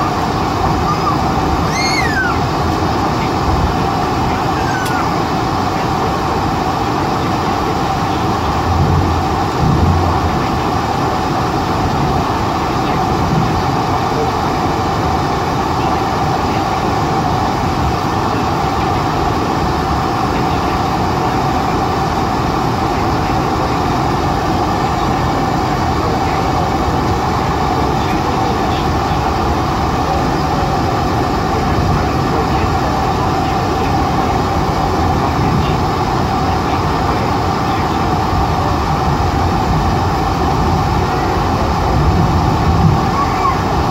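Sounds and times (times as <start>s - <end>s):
aircraft cabin engine rush: 0.0s - 43.9s.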